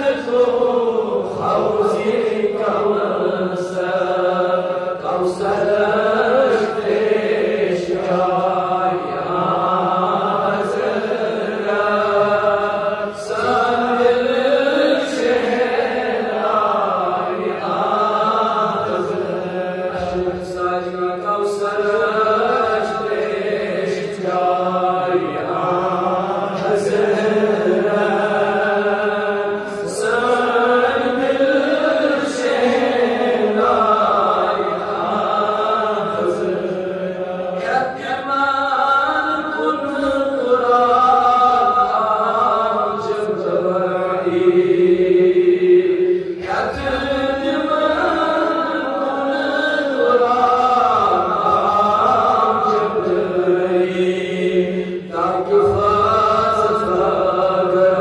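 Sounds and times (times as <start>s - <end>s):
man chanting into a microphone: 0.0s - 58.0s.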